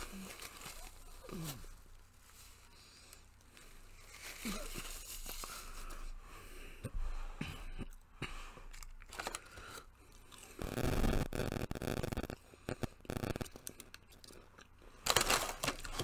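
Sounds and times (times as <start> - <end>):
paper bag crinkling: 0.0 - 2.6, 3.9 - 6.0, 8.8 - 9.8, 15.0 - 16.0
quiet eating sounds: 0.0 - 16.0.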